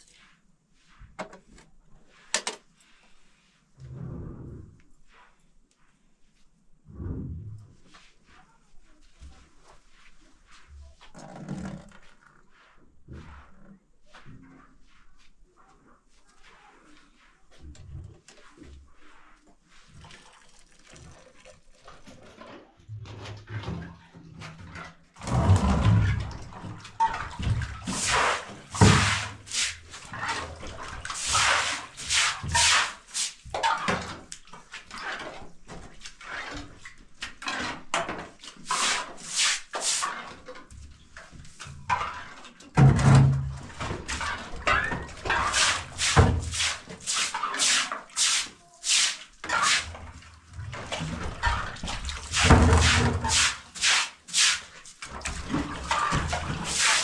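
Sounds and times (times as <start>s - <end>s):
broom swishing on wet floor: 0.0s - 1.2s, 2.0s - 11.2s, 12.0s - 21.2s, 25.2s - 42.5s, 43.6s - 57.0s
water splashing from bucket: 19.8s - 23.9s, 25.2s - 35.4s, 38.2s - 40.5s, 41.7s - 57.0s.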